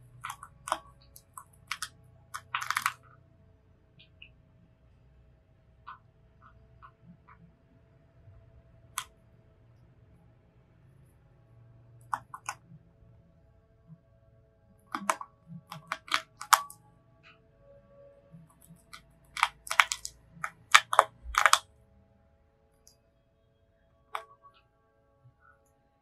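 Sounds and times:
hamster crunching a cracker: 0.1 - 3.2, 12.0 - 12.7, 14.8 - 16.8, 18.4 - 21.7.

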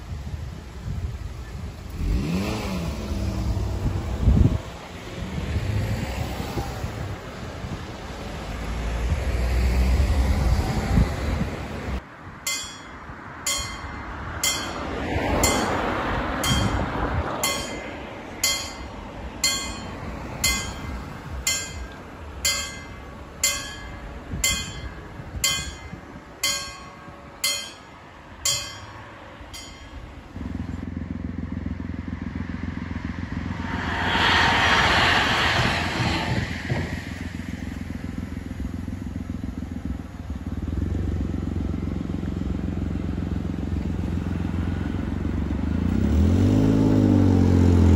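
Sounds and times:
train passing with wheel noise: 5.6 - 41.4
level crossing bells ringing: 12.5 - 30.2.

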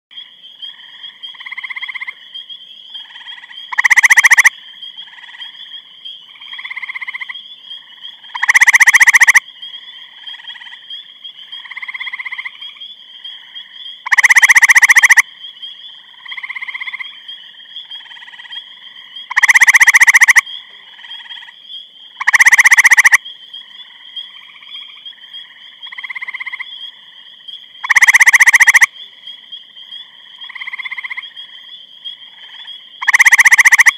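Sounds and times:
treefrog trilling: 0.7 - 2.2, 3.0 - 33.9
steady high-pitched tone: 8.4 - 9.4, 14.1 - 15.2, 19.3 - 20.4, 22.2 - 23.2, 27.9 - 28.9, 33.0 - 33.9.

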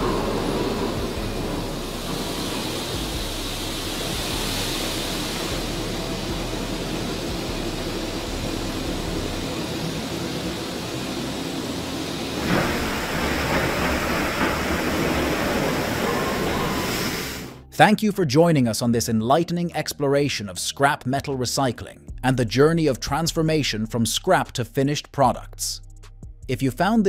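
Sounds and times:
heavy vehicles and machinery: 0.0 - 17.7.

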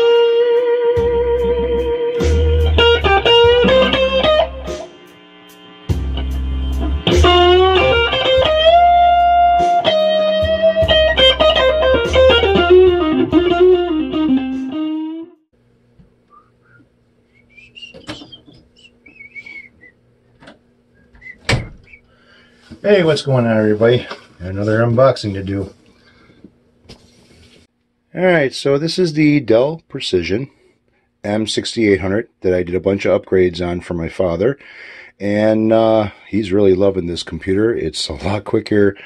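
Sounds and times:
electric guitar blues lead: 0.0 - 5.0, 5.7 - 15.4
low bass notes: 0.9 - 4.8, 5.9 - 14.7.

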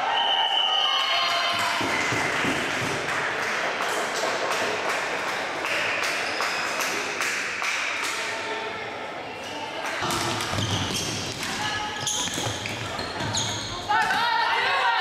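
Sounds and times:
people cheering: 0.0 - 7.2
people clapping: 1.0 - 8.4.

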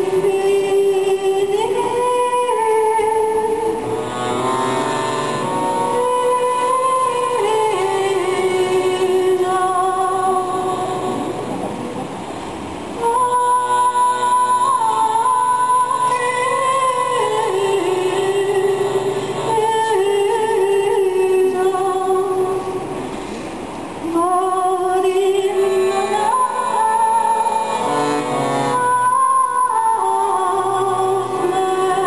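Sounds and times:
accordion slow melody: 3.7 - 13.0, 13.6 - 20.6, 25.4 - 31.8.

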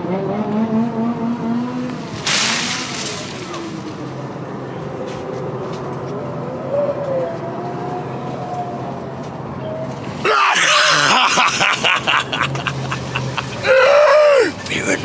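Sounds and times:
engine revving: 0.0 - 4.2.

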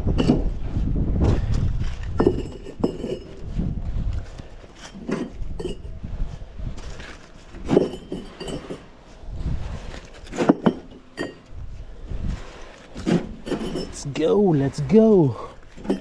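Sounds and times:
bricks clinking: 1.9 - 3.5, 4.7 - 6.0, 7.0 - 9.0, 10.0 - 11.6, 12.5 - 14.3, 15.7 - 16.0.

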